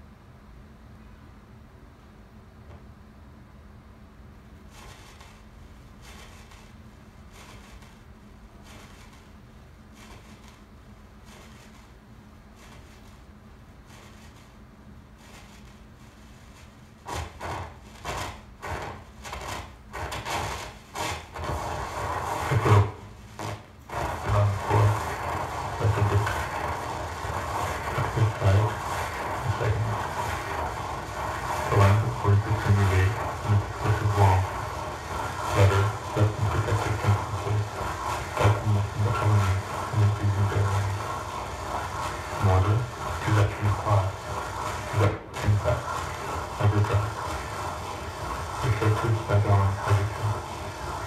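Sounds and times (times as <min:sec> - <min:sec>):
rough scraping on hard surface: 0:15.2 - 0:51.0.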